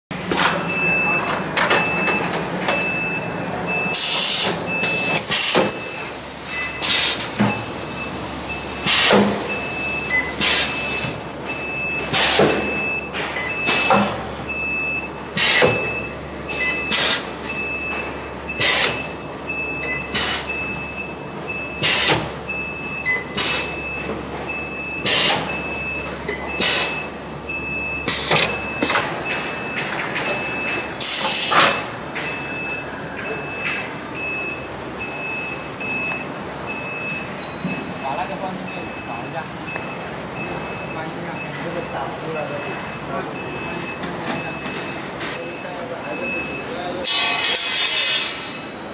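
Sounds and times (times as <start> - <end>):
welding machine noise bursts: 47.1 - 48.4.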